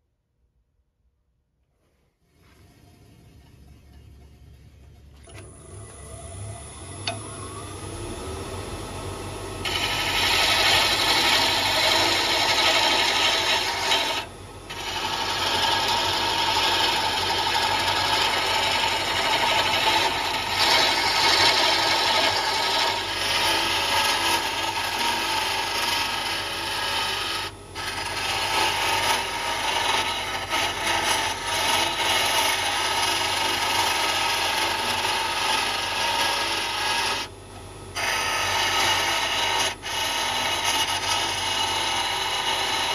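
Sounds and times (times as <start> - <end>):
lathe motor hum: 2.4 - 42.9
turning tool scraping wood: 9.6 - 37.3, 37.9 - 42.9.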